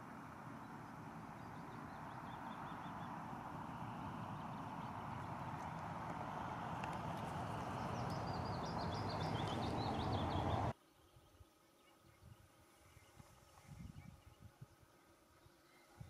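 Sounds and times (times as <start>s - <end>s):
low hum: 0.0s - 10.7s
outdoor rushing noise: 0.0s - 10.7s
small bird twittering: 7.0s - 10.7s.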